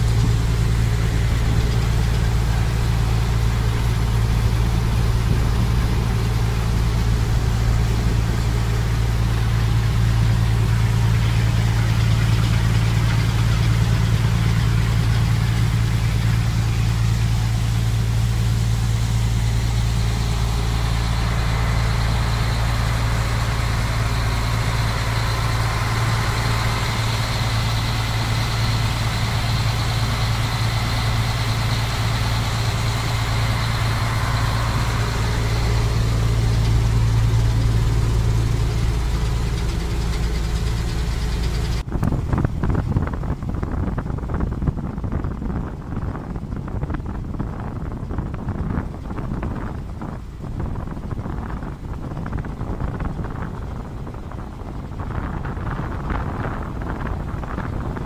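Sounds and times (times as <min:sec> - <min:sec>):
rushing water: 0:00.0 - 0:41.8
ferry engine droning: 0:00.0 - 0:58.0
wind: 0:00.0 - 0:58.0.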